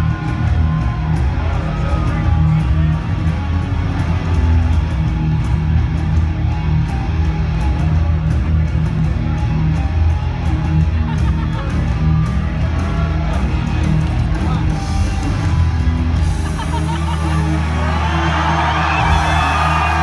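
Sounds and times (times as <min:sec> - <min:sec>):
heavy metal music: 0:00.0 - 0:20.0.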